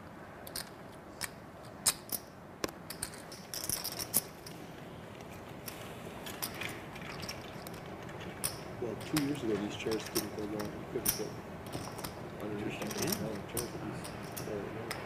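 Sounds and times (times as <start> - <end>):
poker chips clicking: 0.4 - 2.2.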